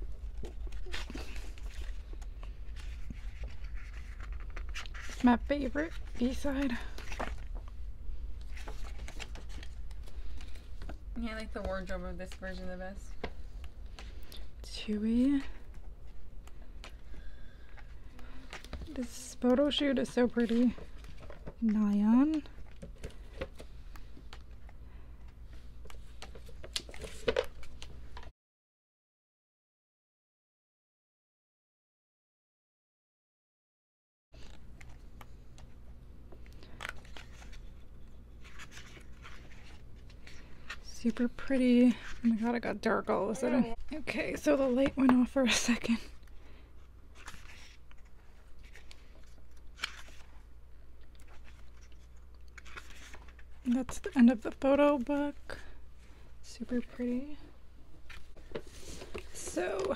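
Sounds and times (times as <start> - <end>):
pages turning and rustling: 0.0 - 7.8, 8.4 - 14.5, 25.5 - 28.3, 34.4 - 42.9, 47.1 - 54.8, 58.0 - 59.9.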